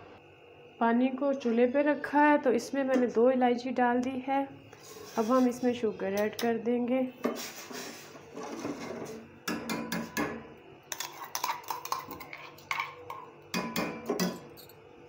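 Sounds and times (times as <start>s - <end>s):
metal spoon scraping saucepan: 4.7s - 6.5s, 7.2s - 9.2s, 10.9s - 13.3s.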